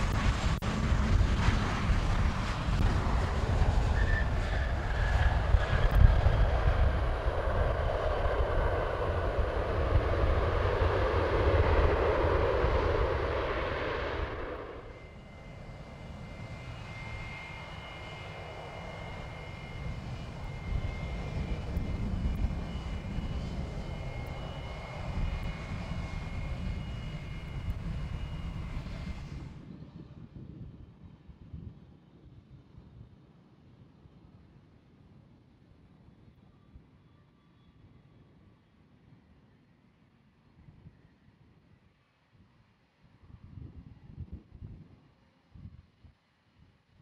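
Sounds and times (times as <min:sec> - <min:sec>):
high steady whine: 0:00.0 - 0:29.6
jet engines roaring: 0:00.0 - 0:29.6
steady rumble: 0:00.0 - 0:29.6.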